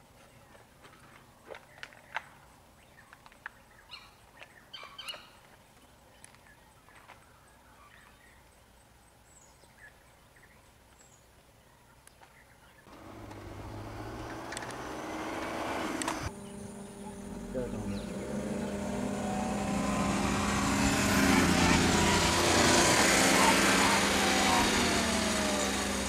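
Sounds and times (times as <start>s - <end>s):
bird chirps: 1.6s - 12.9s, 16.3s - 24.2s
vehicle approaching: 12.9s - 26.0s.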